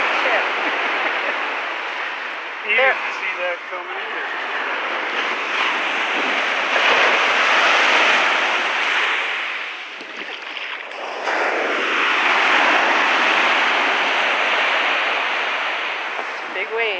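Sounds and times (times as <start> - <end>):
surf breaking on sand: 0.0 - 16.9
wind buffeting microphone: 0.0 - 16.9.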